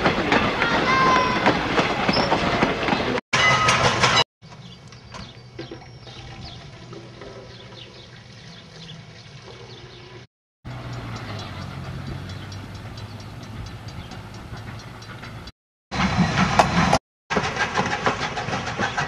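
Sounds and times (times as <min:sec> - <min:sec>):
train wheels clattering over rail joints: 0:00.0 - 0:05.3, 0:10.9 - 0:19.0
train wheel squeal: 0:00.3 - 0:04.2, 0:14.2 - 0:19.0.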